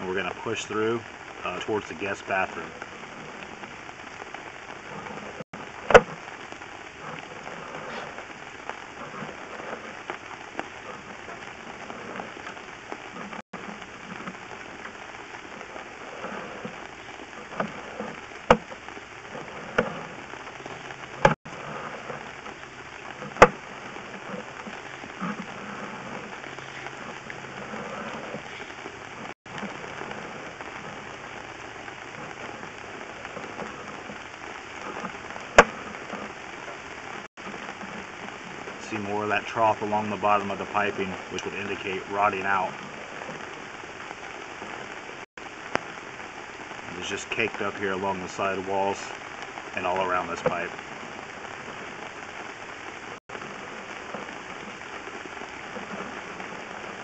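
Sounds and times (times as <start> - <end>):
cable crackling hiss in pipe: 0.0 - 57.0
sharp clicks and knocks: 4.8 - 43.7.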